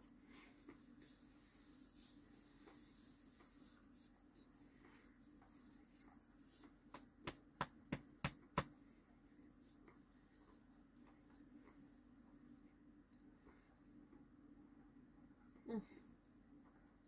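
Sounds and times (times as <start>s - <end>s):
hand slapping a belly: 6.8s - 8.8s.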